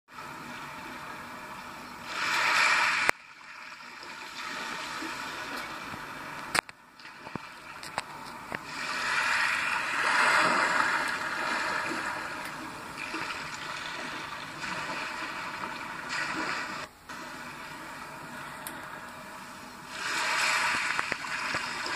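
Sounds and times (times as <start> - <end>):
rushing water through small speaker: 0.1 - 21.9.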